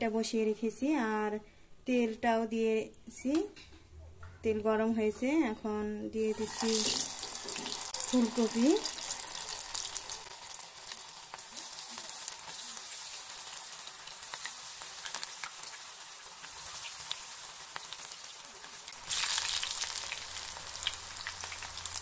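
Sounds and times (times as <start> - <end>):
pakoras sizzling in hot oil: 6.3 - 22.0.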